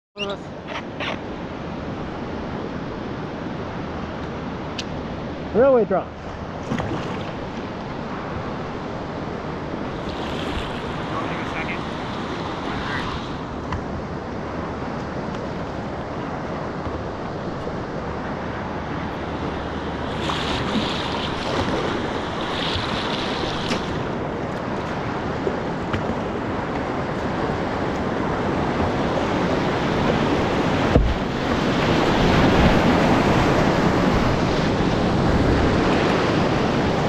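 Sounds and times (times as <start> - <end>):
river current rushing: 0.2 - 37.0
wind buffeting microphone: 0.9 - 37.0.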